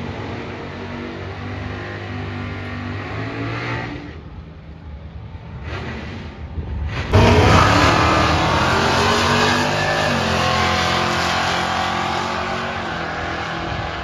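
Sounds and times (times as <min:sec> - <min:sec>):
muscle car engine accelerating: 0:05.6 - 0:14.0.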